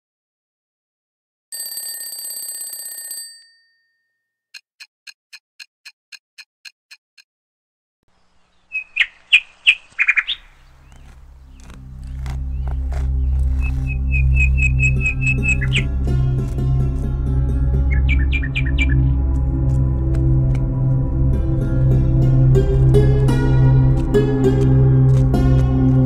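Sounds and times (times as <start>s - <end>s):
alarm clock bell ringing: 1.5s - 4.1s
quick clock ticks: 4.5s - 7.3s
bird-like chirps: 8.1s - 15.9s, 17.8s - 19.2s
music: 11.5s - 26.0s.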